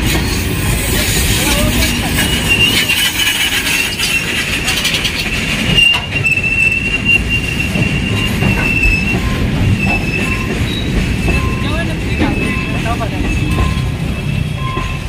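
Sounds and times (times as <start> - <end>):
freight train wheels rumbling: 0.0 - 15.0
high-pitched wheel squeal: 0.2 - 15.0.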